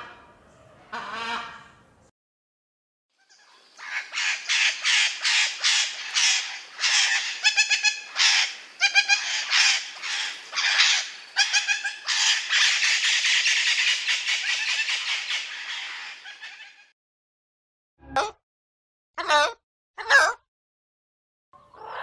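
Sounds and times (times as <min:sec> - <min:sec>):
parrot squawking: 0:03.8 - 0:16.9, 0:19.2 - 0:20.4.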